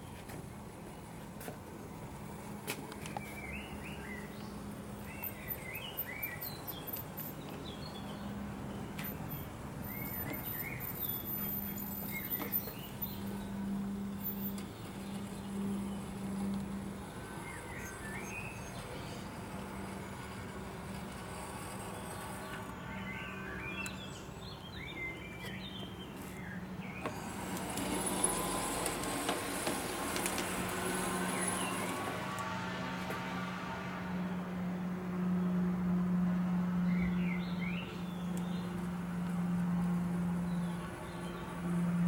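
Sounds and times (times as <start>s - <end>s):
small birds chirping: 3.0s - 29.1s.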